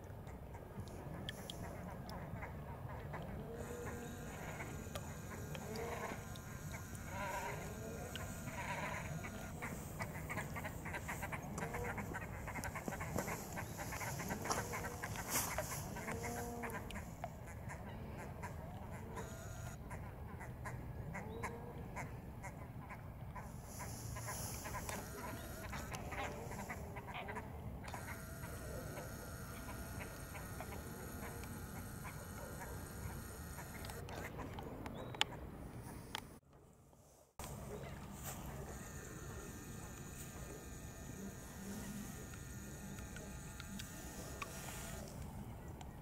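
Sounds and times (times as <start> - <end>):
waterbirds calling: 0.2 - 36.1.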